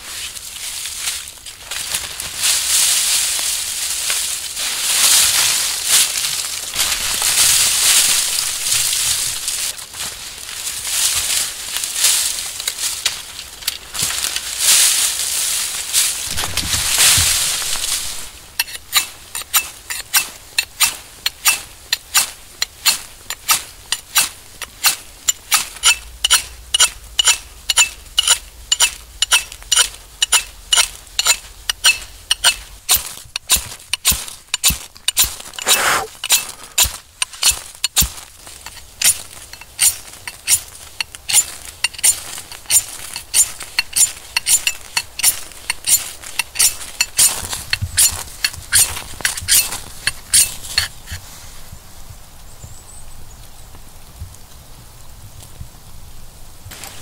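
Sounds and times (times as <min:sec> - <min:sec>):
knife striking flint: 0:18.6 - 0:47.3, 0:48.0 - 0:51.2.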